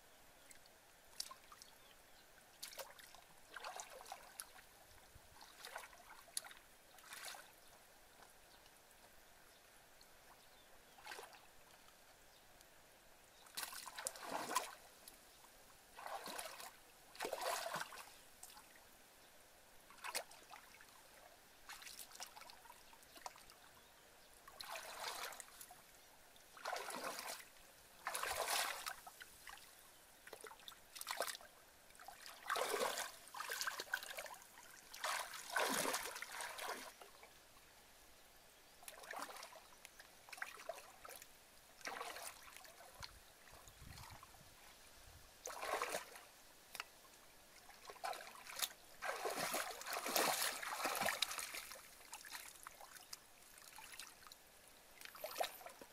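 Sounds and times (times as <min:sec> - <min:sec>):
muddy water splashing: 0:02.6 - 0:04.7, 0:05.4 - 0:07.6, 0:11.0 - 0:11.4, 0:13.4 - 0:14.9, 0:15.9 - 0:18.7, 0:24.5 - 0:25.8, 0:26.5 - 0:29.6, 0:30.2 - 0:37.0, 0:38.8 - 0:39.7, 0:40.3 - 0:44.4, 0:45.4 - 0:46.9, 0:47.6 - 0:54.3, 0:55.0 - 0:55.9.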